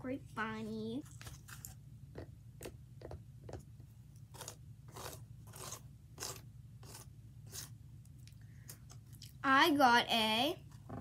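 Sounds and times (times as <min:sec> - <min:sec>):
crunchy scratching of dry wood: 0:04.3 - 0:07.7.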